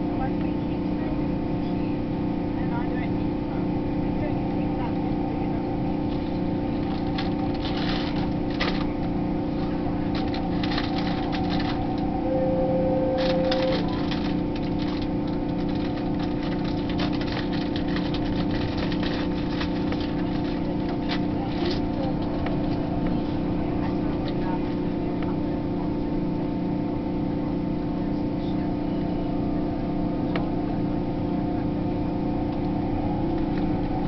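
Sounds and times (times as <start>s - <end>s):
motor hum: 0.0s - 34.0s
train rumbling: 0.0s - 34.0s
clicks and rattles: 10.1s - 12.0s, 13.2s - 22.8s
short steady tone: 12.0s - 14.0s.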